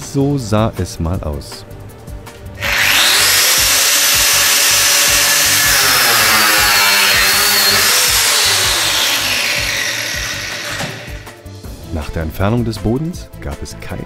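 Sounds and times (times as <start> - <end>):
angle grinder grinding steel: 2.6 - 11.3.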